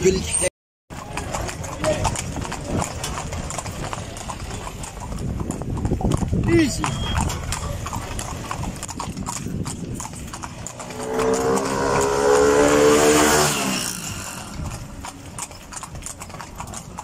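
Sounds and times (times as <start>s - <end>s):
horse hooves clip-clopping on asphalt: 0.9s - 12.4s, 13.5s - 17.0s
motor vehicle passing: 10.1s - 17.0s.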